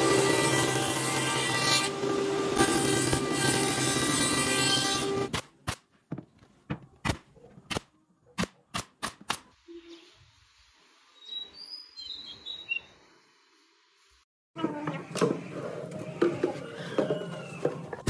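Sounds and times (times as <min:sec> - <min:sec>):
table saw cutting board: 0:00.0 - 0:05.3.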